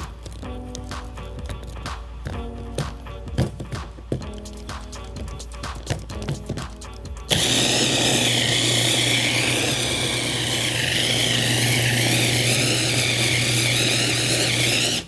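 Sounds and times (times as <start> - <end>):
electric mixer whining: 7.3 - 15.0.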